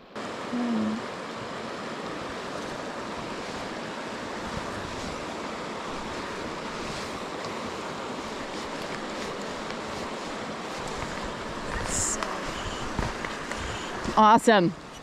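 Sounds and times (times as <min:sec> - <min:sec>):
stream rushing over gravel: 0:00.2 - 0:15.0.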